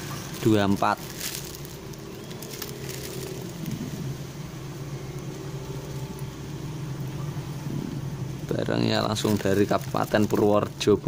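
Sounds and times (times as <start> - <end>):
plastic bag crinkling: 0.0 - 4.2, 8.8 - 11.0
engine humming at low speed: 0.0 - 11.0.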